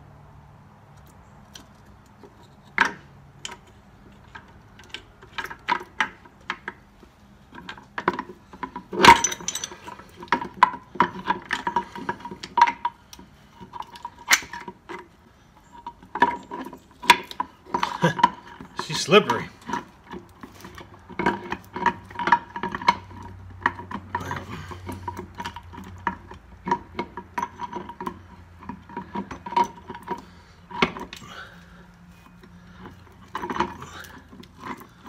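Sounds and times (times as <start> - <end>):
steel gears clinking: 8.9 - 10.4.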